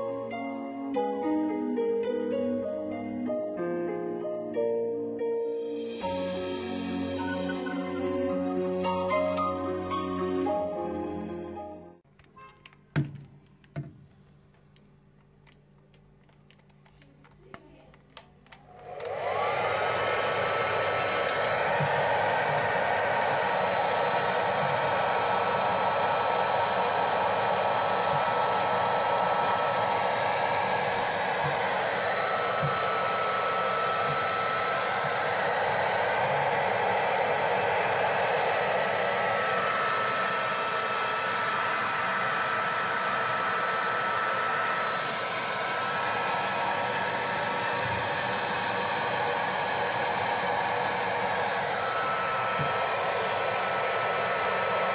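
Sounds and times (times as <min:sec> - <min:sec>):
hair dryer blowing: 0:05.5 - 0:08.3, 0:18.5 - 0:54.9.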